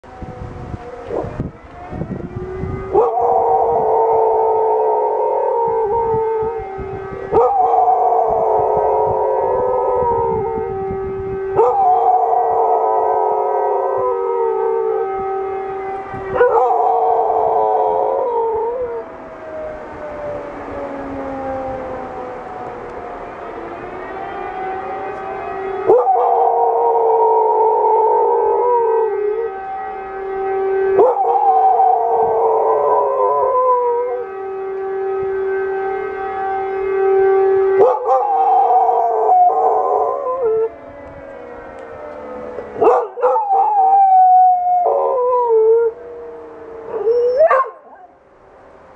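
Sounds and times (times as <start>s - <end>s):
wailing warning siren: 0.0s - 48.9s
dog howling: 0.8s - 10.7s, 11.6s - 15.2s, 16.3s - 23.1s, 25.1s - 29.6s, 30.9s - 34.3s, 37.8s - 40.8s, 41.8s - 48.2s.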